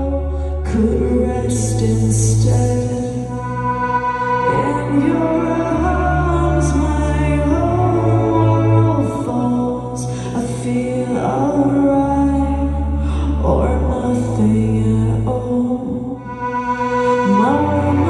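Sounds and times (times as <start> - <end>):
electric keyboard chords: 0.0 - 9.2
person singing long notes: 0.0 - 18.0.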